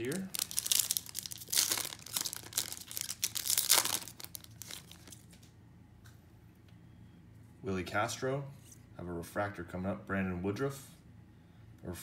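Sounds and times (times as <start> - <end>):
wrapper tearing and crinkling: 0.0 - 5.4.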